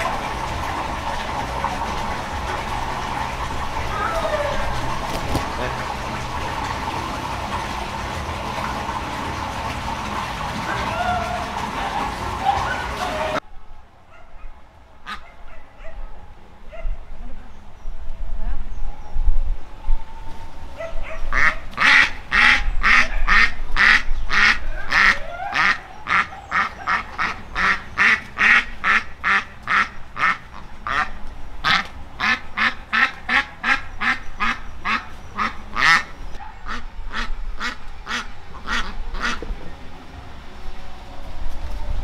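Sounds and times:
ducks quacking: 0.0s - 13.4s, 15.0s - 15.6s, 21.3s - 39.6s.

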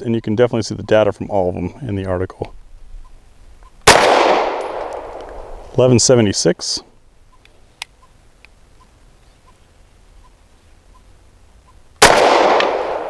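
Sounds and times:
pistol shot with echo: 3.8s - 5.6s, 12.0s - 13.0s
faint click: 7.3s - 9.6s.

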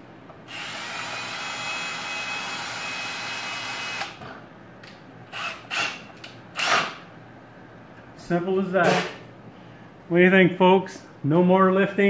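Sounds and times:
cordless drill whining: 0.5s - 4.2s.

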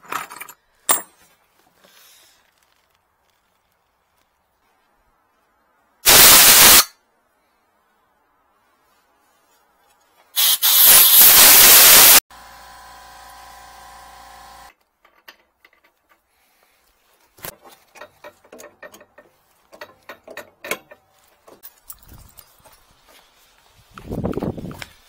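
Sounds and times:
loud hiss: 6.0s - 7.0s, 10.4s - 12.2s
wrench clicking on metal pipe: 18.0s - 21.0s.

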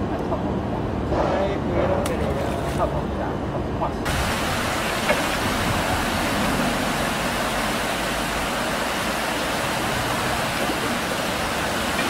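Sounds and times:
steady rushing noise: 4.0s - 12.0s.

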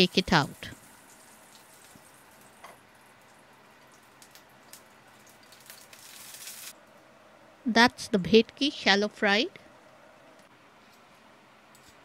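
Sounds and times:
ghee sizzling in a frying pan: 0.2s - 6.8s.

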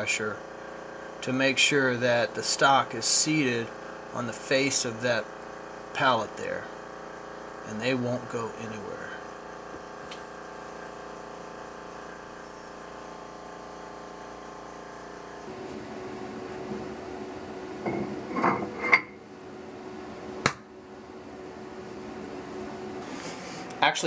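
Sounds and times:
steady hum: 0.0s - 24.0s
metal clinks and knocks: 17.8s - 19.2s.

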